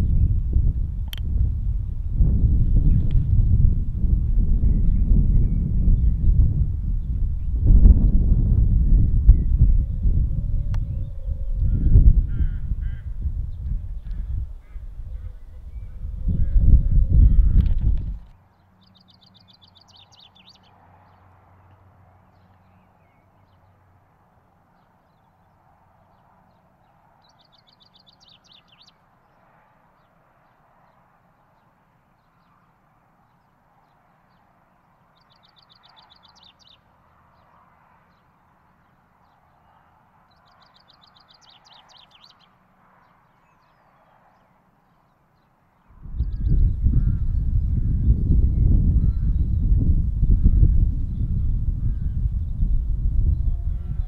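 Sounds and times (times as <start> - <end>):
chaffinch singing: 4.3 - 23.8, 24.8 - 29.4, 33.3 - 37.5, 38.1 - 49.8.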